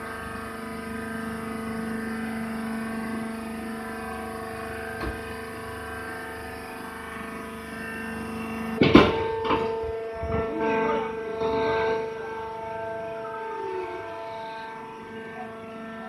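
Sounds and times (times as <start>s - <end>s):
hydraulic power unit humming: 0.0s - 16.0s
loud knock: 8.8s - 9.7s.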